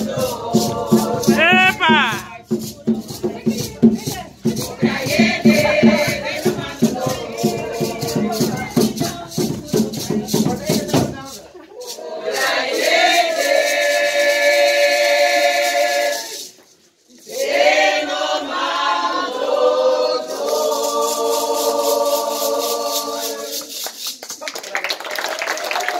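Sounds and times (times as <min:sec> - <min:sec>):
women singing long held notes: 0:00.0 - 0:02.4, 0:04.5 - 0:10.0.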